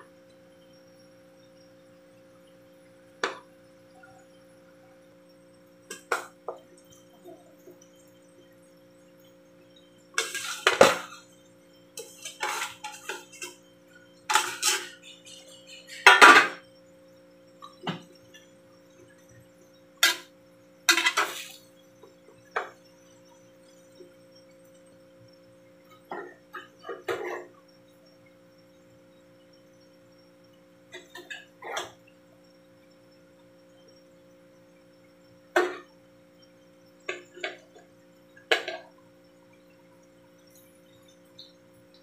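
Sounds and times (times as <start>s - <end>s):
faint steady hum: 0.0s - 42.0s
metal utensil scraping cookware: 10.2s - 11.3s, 12.0s - 13.6s, 14.3s - 16.6s, 20.0s - 20.3s, 20.9s - 21.6s.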